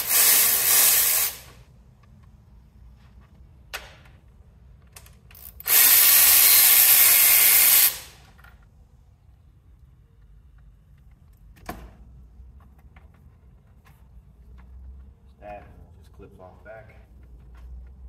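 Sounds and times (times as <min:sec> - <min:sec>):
cordless ratchet whirring: 0:00.0 - 0:01.5, 0:05.3 - 0:08.2.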